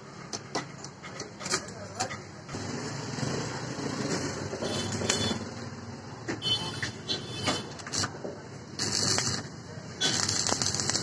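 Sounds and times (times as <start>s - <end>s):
workshop and street background noise: 0.0s - 11.0s.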